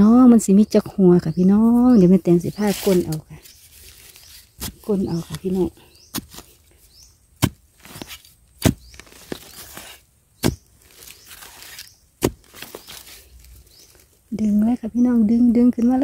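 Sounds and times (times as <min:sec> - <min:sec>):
soil scraping and crumbling: 0:01.7 - 0:14.3
spade chopping into soil: 0:04.6 - 0:06.6, 0:07.4 - 0:13.1.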